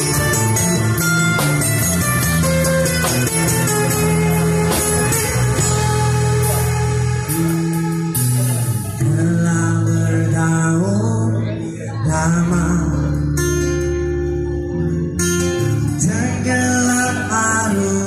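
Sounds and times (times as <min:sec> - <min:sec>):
amplified acoustic guitar: 0:00.0 - 0:18.0.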